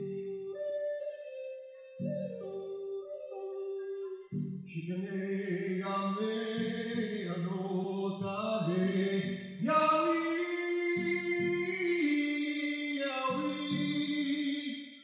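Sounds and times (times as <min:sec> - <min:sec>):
slow chant-like singing: 0:04.2 - 0:14.8.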